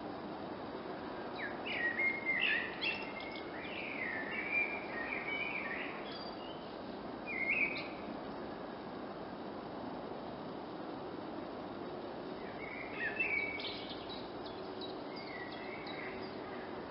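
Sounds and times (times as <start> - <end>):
steady background noise: 0.0 - 16.9
blackbird singing: 1.4 - 8.1, 12.4 - 16.9.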